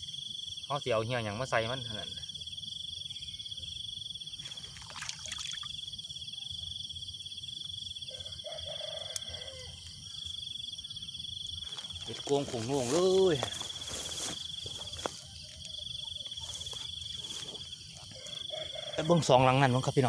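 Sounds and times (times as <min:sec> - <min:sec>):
crickets and insects trilling: 0:00.0 - 0:20.0
faint rustling: 0:11.6 - 0:15.4.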